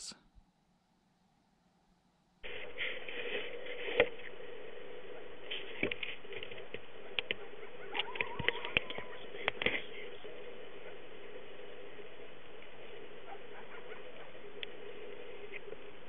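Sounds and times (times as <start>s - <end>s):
steady camera hum: 0.0s - 16.0s
camera motor whine: 3.4s - 16.0s.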